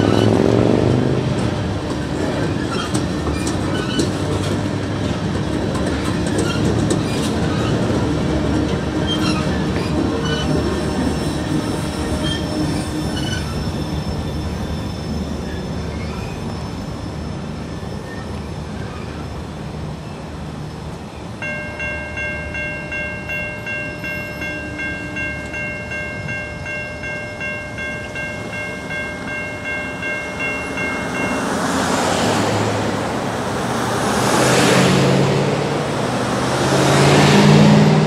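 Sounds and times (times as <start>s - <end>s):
crossing bell dinging: 21.4s - 33.0s
cars driving over crossing: 28.0s - 38.0s.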